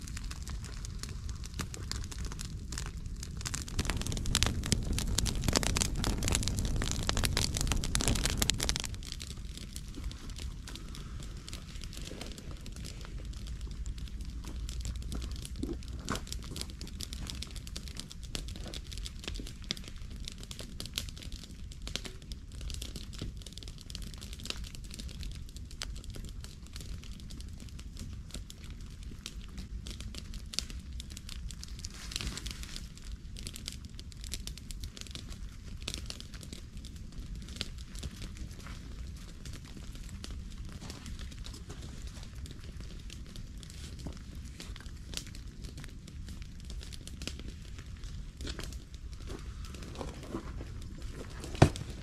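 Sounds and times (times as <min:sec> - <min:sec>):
steady low rumble: 0:00.0 - 0:20.8
campfire crackling and snapping: 0:00.0 - 0:52.0.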